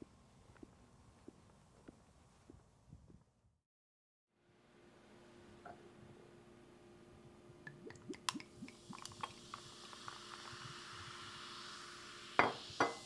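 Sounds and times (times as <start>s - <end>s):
liquid pouring into glass: 7.7s - 12.9s.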